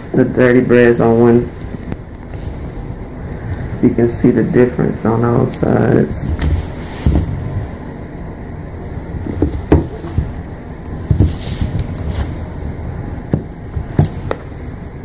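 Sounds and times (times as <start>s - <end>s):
soft knocks: 9.2s - 10.4s, 11.0s - 11.6s, 13.3s - 14.5s.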